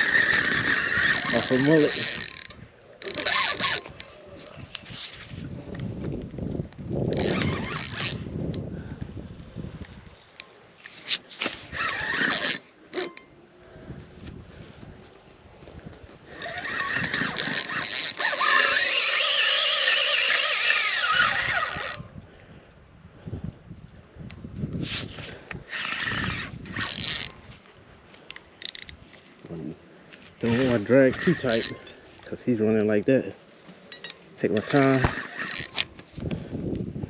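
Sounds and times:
fishing reel drag buzzing: 0:00.0 - 0:04.2, 0:07.1 - 0:08.6, 0:11.6 - 0:13.3, 0:16.3 - 0:22.1, 0:25.6 - 0:27.4, 0:30.4 - 0:32.0, 0:33.9 - 0:36.0.

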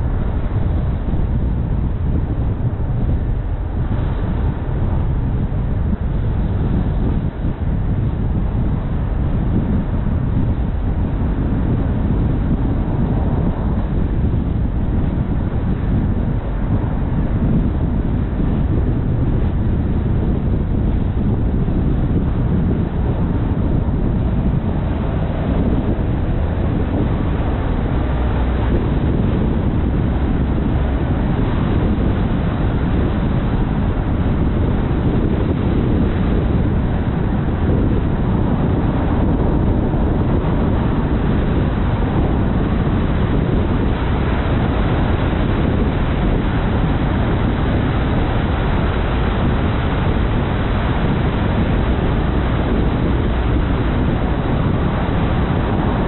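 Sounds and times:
car driving on road: 0:00.0 - 0:56.0.

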